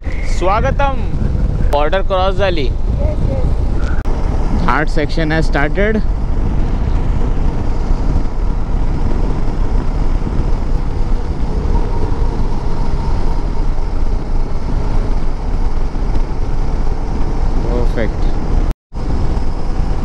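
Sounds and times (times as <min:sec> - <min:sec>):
motorcycle engine running: 0:00.0 - 0:20.0
wind and road noise: 0:00.0 - 0:20.0.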